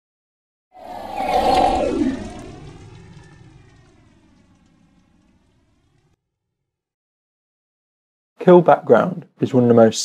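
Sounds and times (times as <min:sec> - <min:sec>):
synthesized whoosh with phaser tone: 0:00.8 - 0:06.2.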